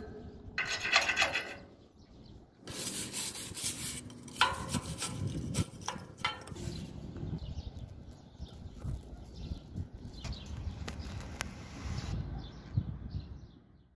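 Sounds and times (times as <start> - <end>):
metal knocks on welded steel: 4.4 - 6.7.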